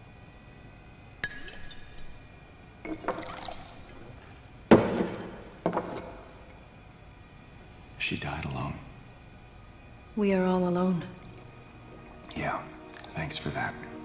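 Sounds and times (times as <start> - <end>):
drink pouring: 1.2 - 2.2, 2.8 - 6.4, 11.2 - 14.0
glass knocking on table: 4.7 - 6.3
bottle clinking on glass: 4.7 - 6.8.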